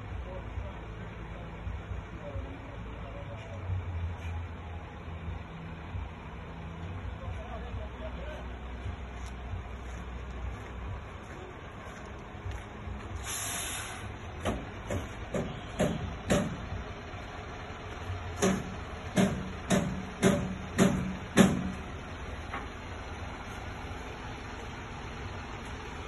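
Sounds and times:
heavy truck moving slowly: 0.0 - 26.0
air hiss: 13.2 - 14.2
sharp knocks: 14.4 - 16.7, 18.4 - 21.8.

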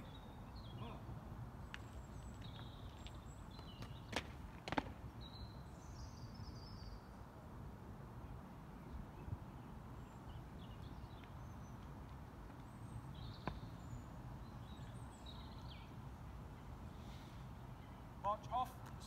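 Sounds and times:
small birds chirping: 0.0 - 4.2, 8.8 - 19.0.

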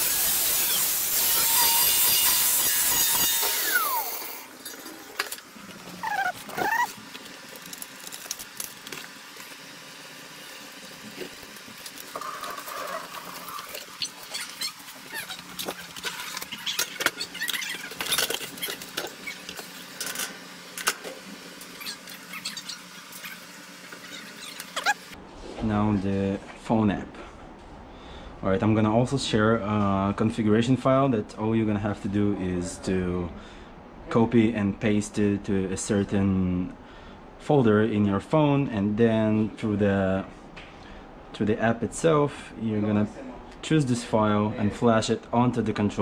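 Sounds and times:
angle grinder cutting metal: 0.0 - 4.6.

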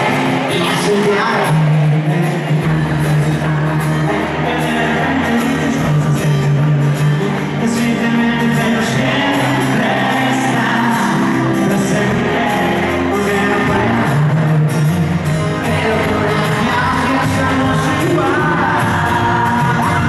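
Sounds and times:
live pop band playing: 0.0 - 20.0
person singing: 0.0 - 20.0.

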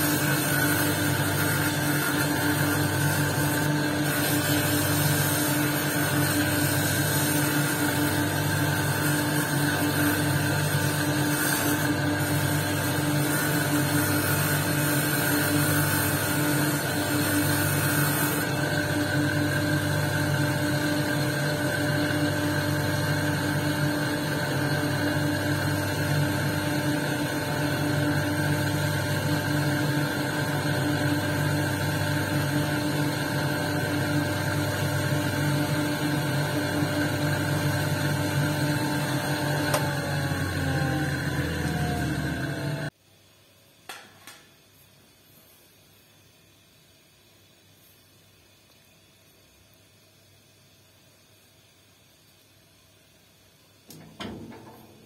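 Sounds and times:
stone grinding hiss: 0.0 - 20.1
electric motor humming: 0.0 - 42.9.

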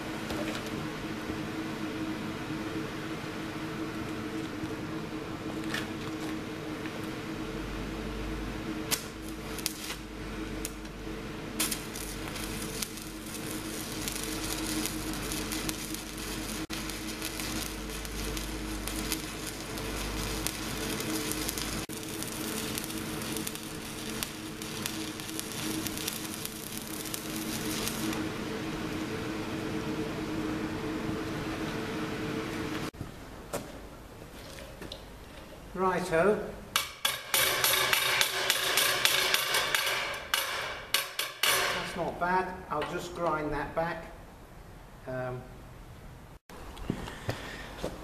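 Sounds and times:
welding arc crackling hiss: 8.1 - 31.7, 36.7 - 42.6.

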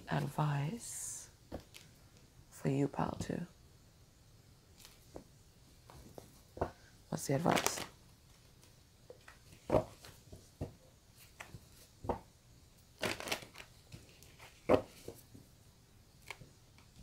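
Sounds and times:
cards shuffling: 7.4 - 8.0, 13.0 - 15.3
cards slapping and tapping: 8.6 - 12.3, 13.0 - 15.4, 16.2 - 17.0.

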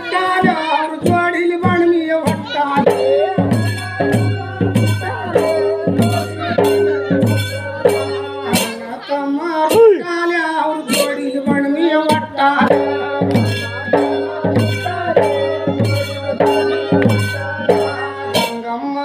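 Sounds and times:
man singing folk song: 8.4 - 13.8.

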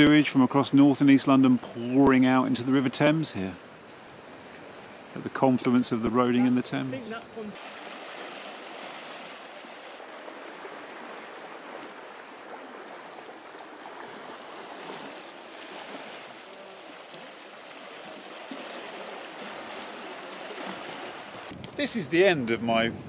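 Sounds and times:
turbulent water rushing: 4.2 - 22.4.

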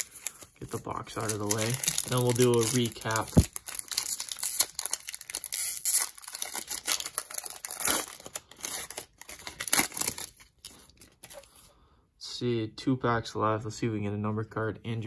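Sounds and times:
foil wrapper tearing and crinkling: 0.0 - 11.4.

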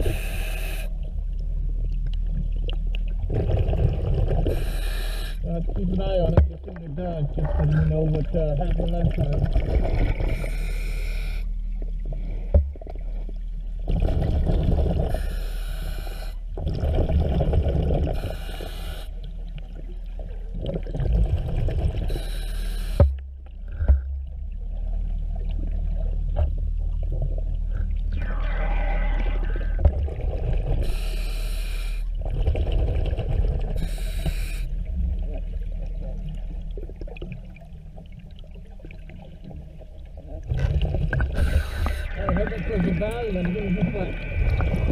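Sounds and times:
diver breathing through regulator: 0.0 - 1.0, 4.4 - 5.4, 10.1 - 11.5, 15.0 - 16.4, 18.0 - 19.2, 22.0 - 23.1, 30.8 - 32.1, 33.7 - 34.8, 41.2 - 43.4
bubbling rumble: 1.0 - 4.8, 5.4 - 10.6, 11.6 - 15.3, 16.4 - 22.2, 23.3 - 31.0, 32.1 - 44.9.

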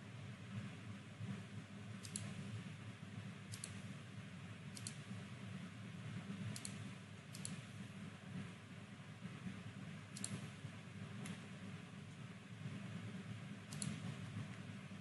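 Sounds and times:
low steady background hum: 0.0 - 15.0
computer mouse clicks: 2.0 - 2.4, 3.5 - 3.8, 4.7 - 5.1, 6.5 - 7.7, 10.1 - 10.6, 13.7 - 14.2.

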